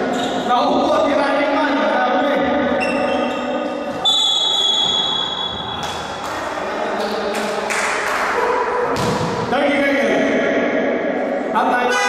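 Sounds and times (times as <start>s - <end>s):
voices in echoing hall: 0.0s - 12.0s
referee whistle: 4.0s - 5.6s
basketball bouncing on floor: 8.9s - 9.4s.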